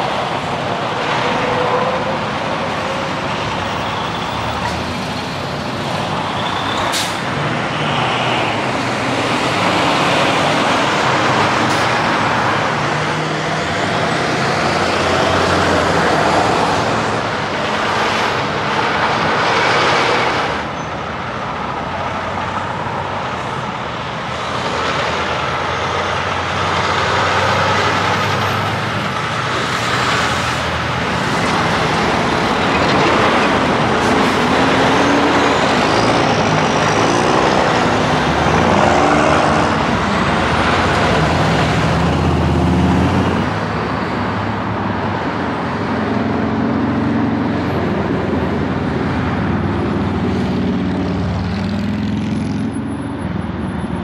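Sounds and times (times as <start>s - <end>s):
diesel truck engines: 0.0s - 54.0s
tyre and road noise: 0.0s - 54.0s
truck engine revving: 21.6s - 52.8s.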